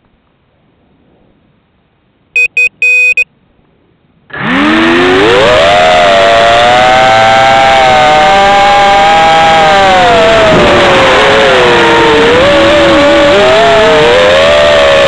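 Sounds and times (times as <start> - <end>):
electronic beeps: 2.4 - 3.2.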